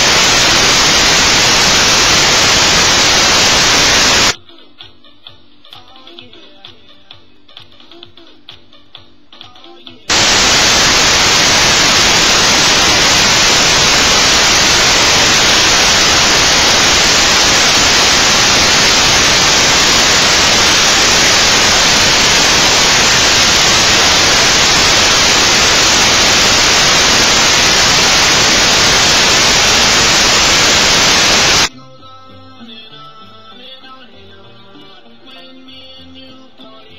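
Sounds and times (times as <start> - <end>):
loud static hiss: 0.0 - 4.4, 10.1 - 31.7.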